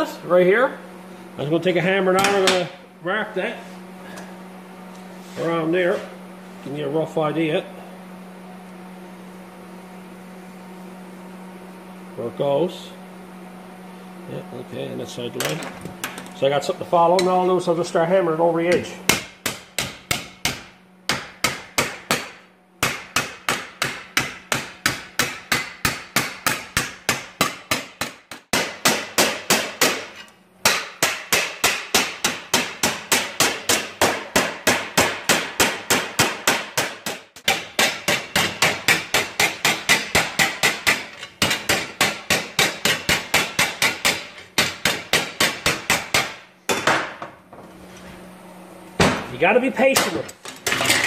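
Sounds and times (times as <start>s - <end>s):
hammer beating sheet steel: 18.7s - 46.4s.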